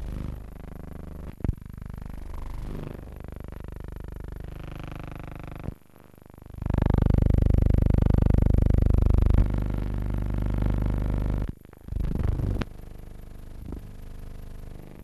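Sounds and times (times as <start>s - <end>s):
steady electrical buzz: 0.0s - 15.0s.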